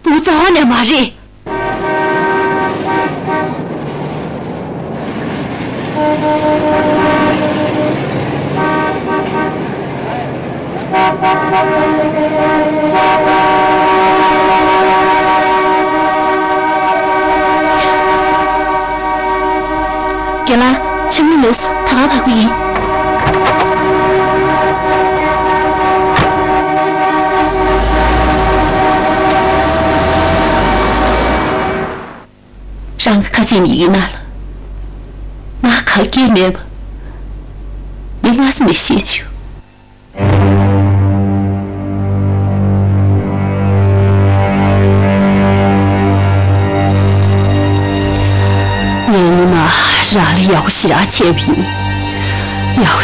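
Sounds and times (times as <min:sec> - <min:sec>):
car horns honking: 0:01.5 - 0:03.7, 0:06.0 - 0:09.8, 0:10.9 - 0:32.3
city street traffic: 0:01.5 - 0:32.6
sustained synthesizer chord: 0:11.3 - 0:32.7, 0:40.2 - 0:49.1
deep low note: 0:21.7 - 0:32.3.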